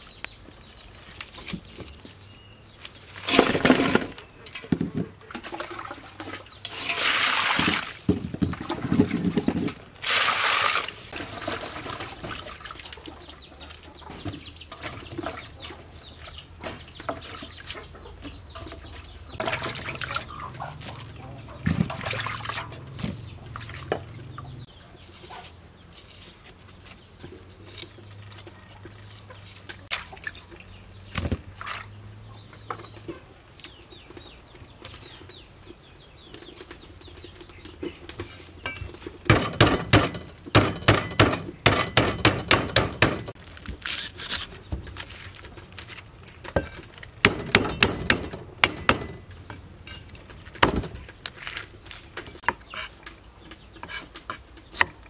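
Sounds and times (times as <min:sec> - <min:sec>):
chickens clucking: 0:11.1 - 0:25.8, 0:26.7 - 0:39.3
cleaver chopping on wooden block: 0:39.3 - 0:43.3, 0:47.2 - 0:49.2.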